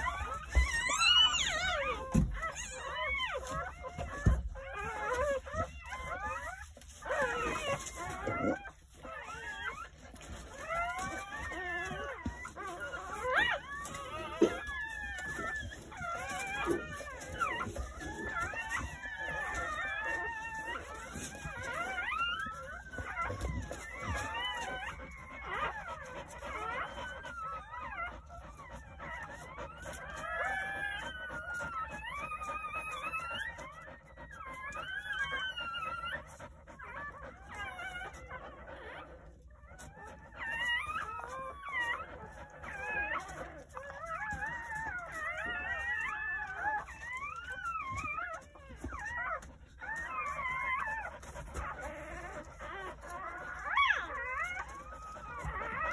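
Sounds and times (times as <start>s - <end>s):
puppies crying: 0.0s - 55.9s.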